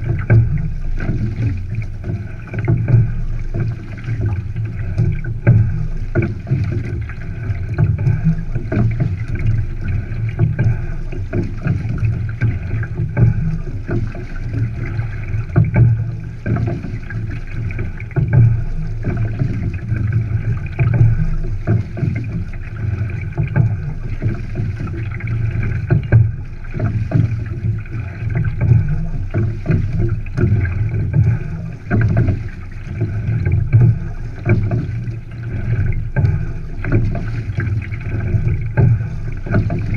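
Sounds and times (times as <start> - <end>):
water rushing along hull: 0.0 - 39.9.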